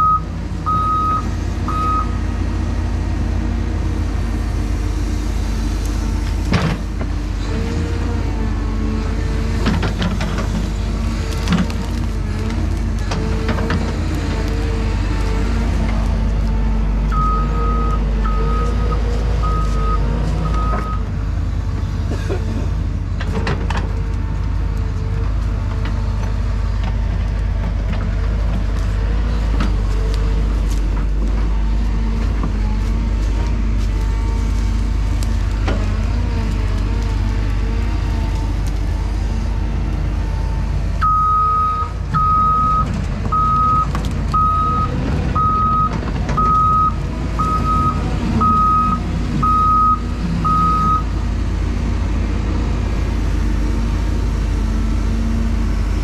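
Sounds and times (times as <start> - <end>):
excavator diesel engine running: 0.0 - 56.0
back-up alarm beeping: 41.0 - 51.0.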